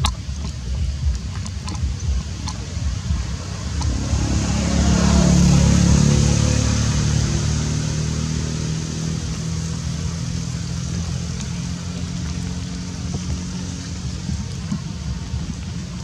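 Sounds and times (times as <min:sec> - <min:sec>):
vehicle engine passing by: 0:01.4 - 0:16.0.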